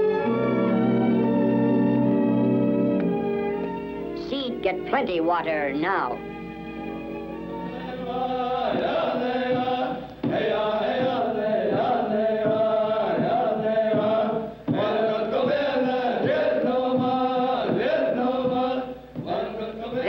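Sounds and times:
voices chanting music: 7.4s - 20.0s.

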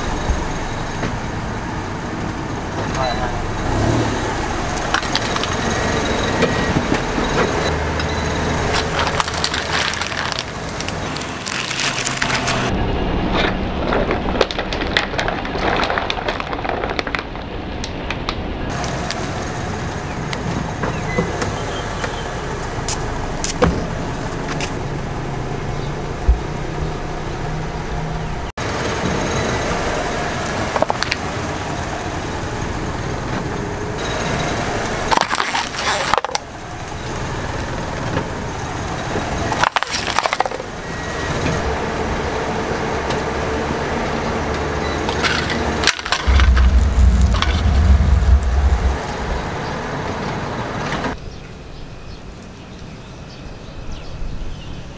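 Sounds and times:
tyre and car noise: 0.0s - 51.2s
plastic crackling under tyres: 4.8s - 5.7s, 8.7s - 12.7s, 13.8s - 19.3s, 35.1s - 38.2s, 39.5s - 40.8s.

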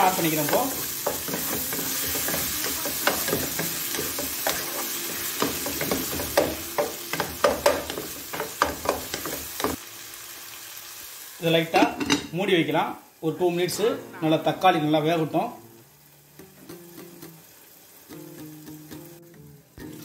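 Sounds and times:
spatula scraping and tapping pan: 0.0s - 9.8s
food sizzling in oil: 0.0s - 20.0s.

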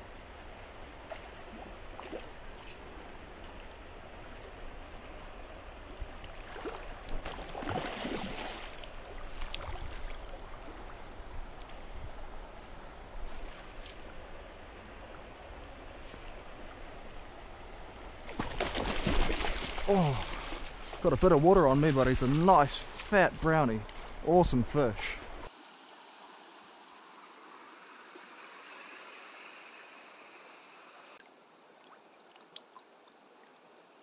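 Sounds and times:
stream water running: 0.0s - 34.0s
fish thrashing and splashing: 6.4s - 10.3s, 18.3s - 21.0s.

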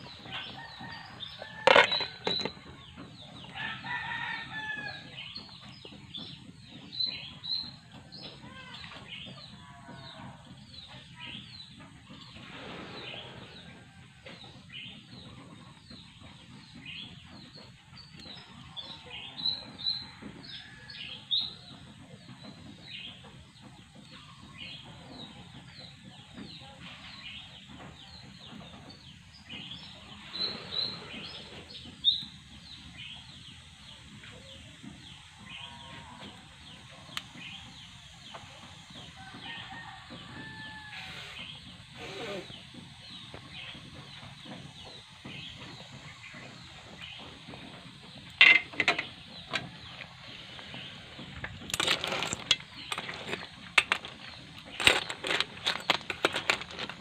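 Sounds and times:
shellfish boiling in a pot: 0.0s - 7.2s, 25.8s - 42.0s, 42.6s - 57.0s
small birds chirping: 22.4s - 57.0s.

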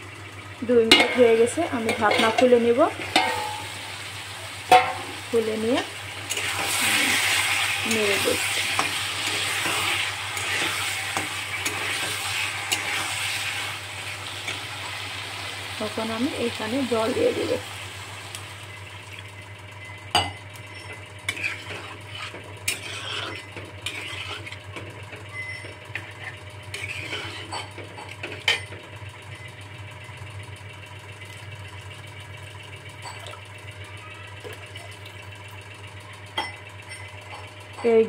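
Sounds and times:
metal spatula scraping a wok: 6.3s - 13.7s, 20.7s - 24.6s, 25.9s - 27.8s.

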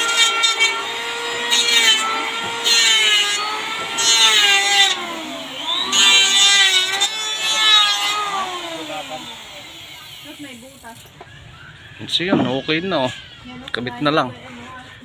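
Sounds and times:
electric planer motor whine: 0.0s - 10.6s.

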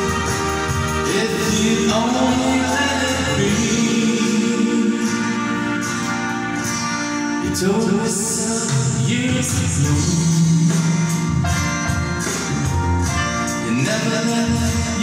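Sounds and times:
man singing into microphone: 0.0s - 5.8s, 7.4s - 11.4s, 13.5s - 15.0s
backing track with guitar: 0.0s - 15.0s.

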